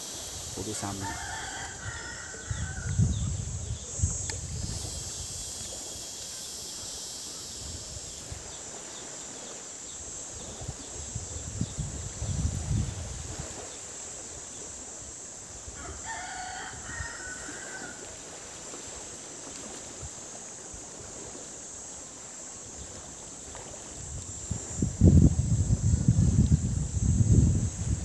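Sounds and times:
high insect drone: 0.0s - 28.0s
rooster crowing: 0.8s - 3.0s, 15.8s - 18.1s.

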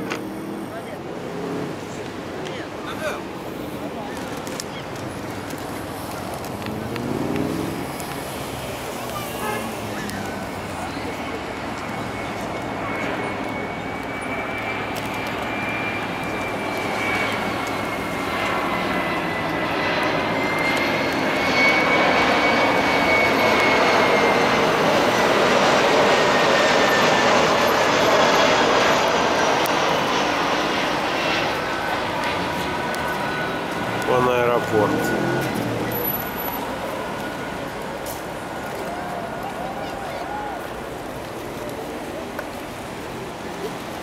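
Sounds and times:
high fan whine: 0.0s - 44.0s
jet airliner passing overhead: 0.0s - 44.0s.

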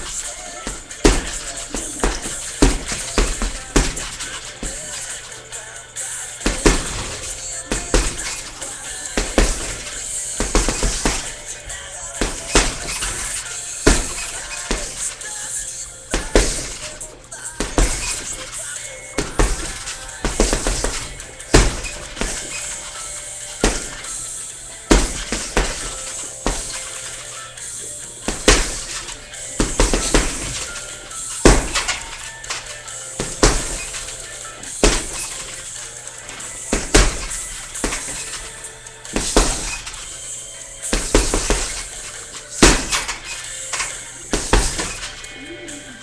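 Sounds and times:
punches thudding on heavy bag: 0.0s - 5.2s, 6.4s - 15.4s, 16.1s - 27.3s, 28.2s - 45.3s
background music: 0.0s - 46.0s.

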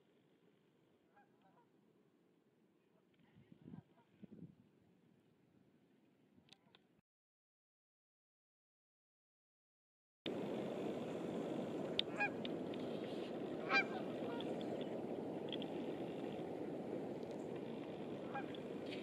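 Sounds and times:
low rushing background: 10.3s - 19.0s
geese honking: 11.0s - 19.0s.

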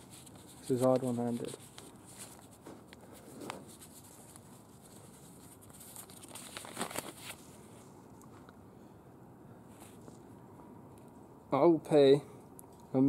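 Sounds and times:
paper rustling and crinkling: 0.0s - 8.5s.

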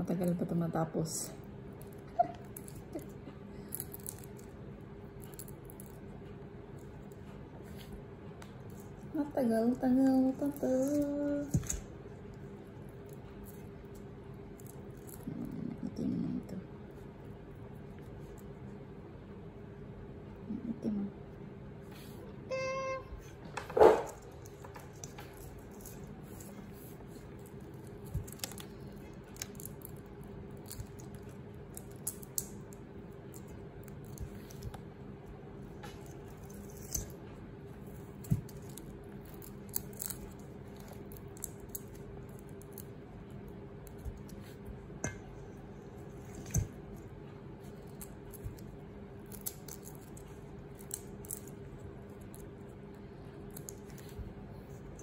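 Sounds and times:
steady low hum: 0.0s - 55.0s
shrimp shells clicking and crackling: 27.4s - 34.8s.

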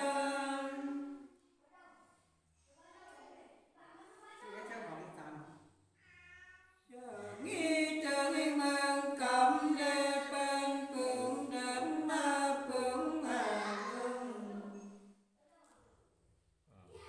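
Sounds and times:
woman singing unaccompanied: 0.0s - 1.3s, 6.9s - 15.0s.

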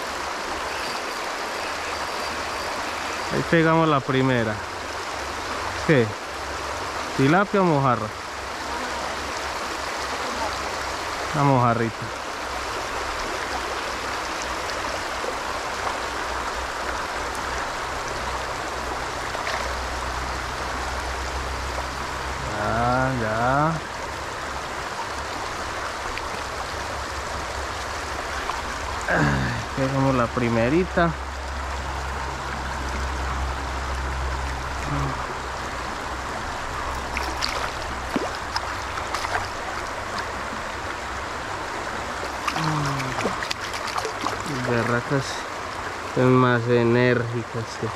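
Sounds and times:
creek water running over stones: 0.0s - 47.9s
small splashes in water: 36.9s - 40.4s, 42.1s - 45.1s.

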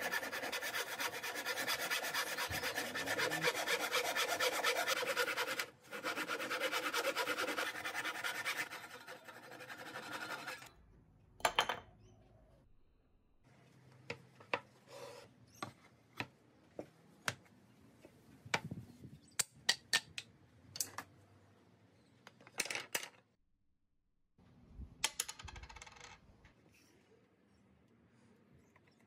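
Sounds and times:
coin rattling on wooden board: 22.5s - 23.2s, 25.0s - 26.2s.

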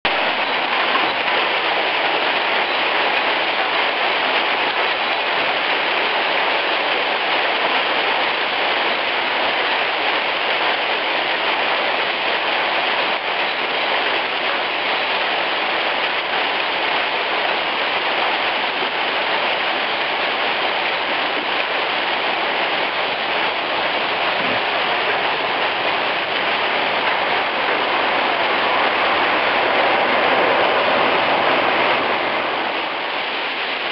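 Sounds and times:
hail striking stone pavement: 0.1s - 33.9s.

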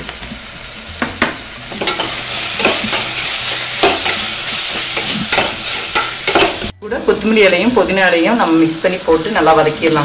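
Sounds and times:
oil sizzling in a pot: 0.0s - 10.0s
metal spoon scraping and clinking pot: 1.8s - 6.6s.

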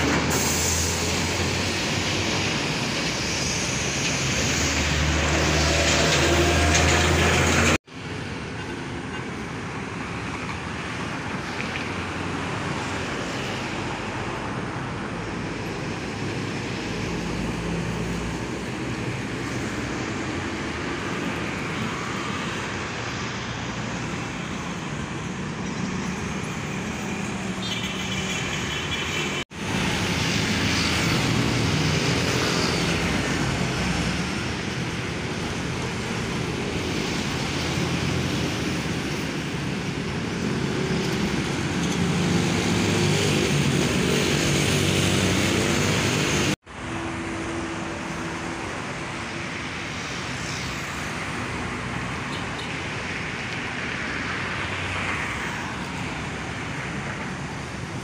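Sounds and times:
cars passing: 0.0s - 58.0s
trucks passing: 0.0s - 58.0s
motorcycles passing: 16.4s - 46.6s.

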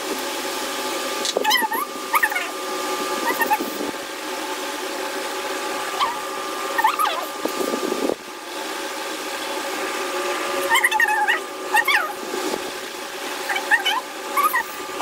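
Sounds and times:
steady mechanical hum: 0.0s - 15.0s
short whining calls: 5.8s - 7.4s, 13.4s - 15.0s.

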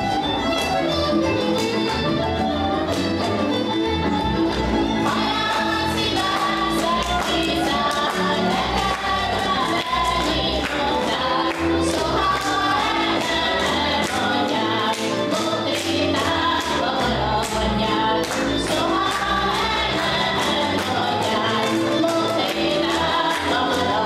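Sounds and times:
women singing together: 5.0s - 24.0s.

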